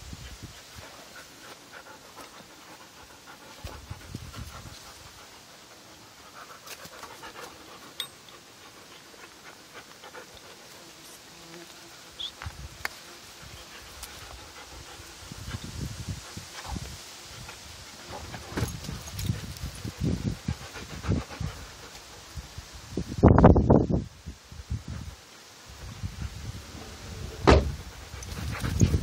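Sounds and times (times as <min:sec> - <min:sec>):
dog panting: 0:00.4 - 0:10.9, 0:13.4 - 0:15.6, 0:16.2 - 0:22.3, 0:27.7 - 0:29.0.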